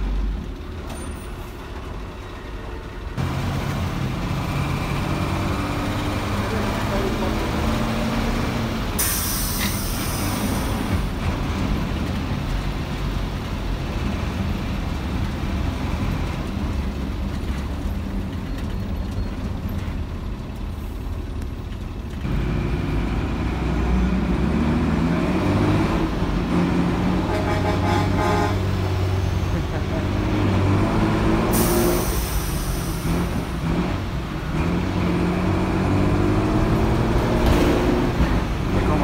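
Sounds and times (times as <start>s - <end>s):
bus diesel engine running: 0.0s - 39.0s
sharp air hiss: 9.0s - 10.6s, 31.6s - 33.2s.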